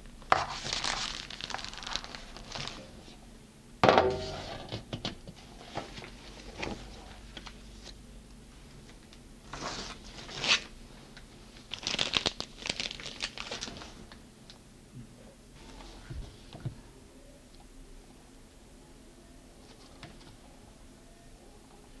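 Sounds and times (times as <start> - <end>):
plastic piping bag crinkling: 0.2 - 3.0, 11.6 - 14.0.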